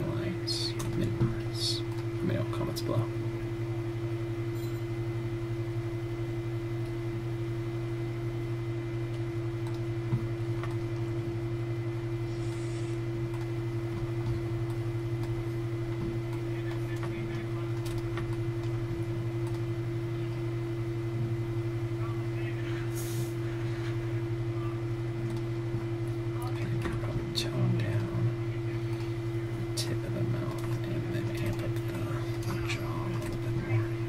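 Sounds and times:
low electrical hum: 0:00.0 - 0:34.0
keyboard and mouse clicks: 0:09.1 - 0:09.8, 0:19.4 - 0:19.6, 0:25.3 - 0:25.5.

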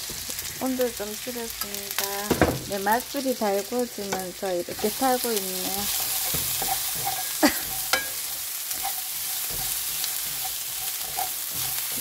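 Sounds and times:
food sizzling in a frying pan: 0:00.0 - 0:12.0
spatula scraping a pan: 0:04.1 - 0:12.0.

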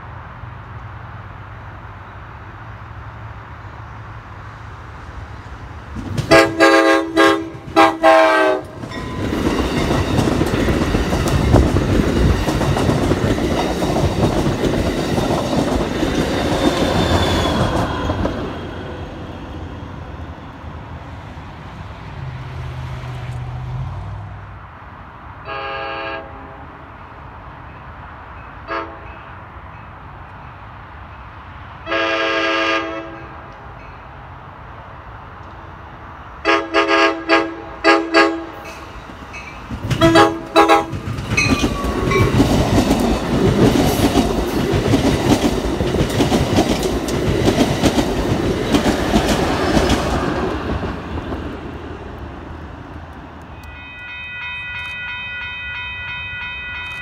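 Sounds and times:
train wheels rumbling and clacking: 0:05.1 - 0:24.0, 0:37.8 - 0:53.8
locomotive air horn blasts: 0:06.3 - 0:08.8, 0:25.4 - 0:26.8, 0:28.7 - 0:29.2, 0:31.8 - 0:33.4, 0:36.4 - 0:38.6, 0:40.0 - 0:41.0.

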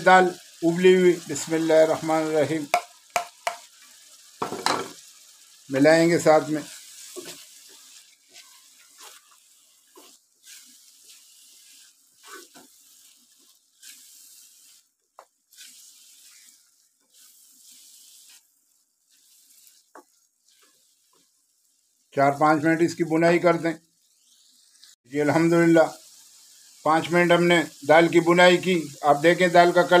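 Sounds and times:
food sizzling in a wok: 0:00.0 - 0:30.0
spatula scraping a pan: 0:06.7 - 0:21.4.

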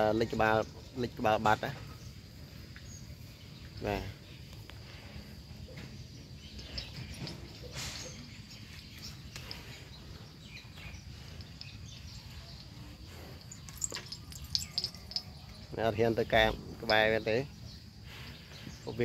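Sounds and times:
bird chirps: 0:00.0 - 0:19.0
faint insect drone: 0:00.0 - 0:19.0.

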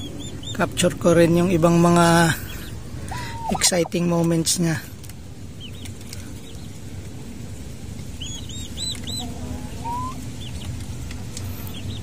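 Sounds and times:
turkey poults peeping: 0:00.0 - 0:04.3, 0:05.6 - 0:06.9, 0:08.0 - 0:12.0
low background rumble: 0:00.0 - 0:12.0
low rising bird call: 0:03.1 - 0:03.9, 0:08.2 - 0:10.4.

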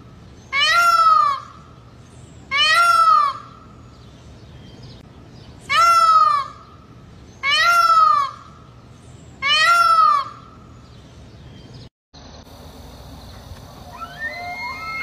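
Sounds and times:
peacock calling: 0:13.3 - 0:15.0.

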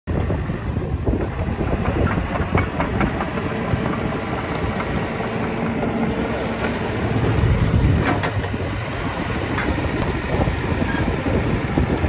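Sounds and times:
excavator diesel engine running: 0:00.1 - 0:12.0
steel tracks clanking: 0:01.7 - 0:08.8.

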